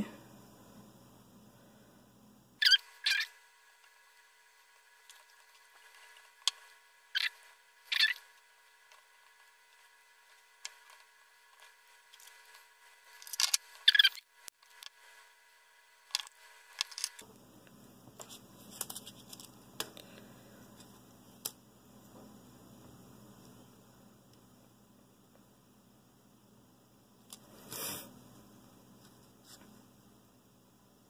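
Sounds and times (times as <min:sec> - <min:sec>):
faint low hum: 0:00.0 - 0:31.0
clicks and rustles of handling wires: 0:16.1 - 0:22.3.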